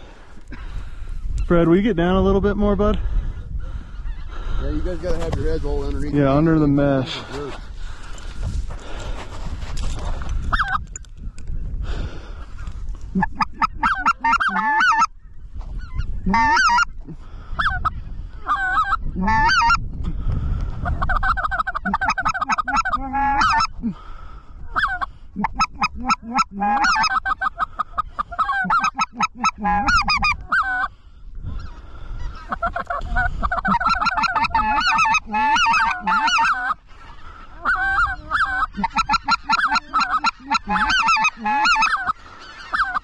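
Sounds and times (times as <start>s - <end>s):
wind rumble: 0.0s - 43.0s
goose yelping calls: 10.5s - 10.8s, 13.2s - 15.1s, 15.8s - 16.9s, 17.6s - 19.8s, 20.8s - 23.7s, 24.7s - 30.9s, 31.6s - 43.0s.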